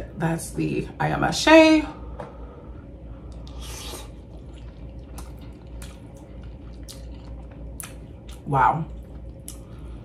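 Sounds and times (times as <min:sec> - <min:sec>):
wet chewing: 0:03.2 - 0:09.9.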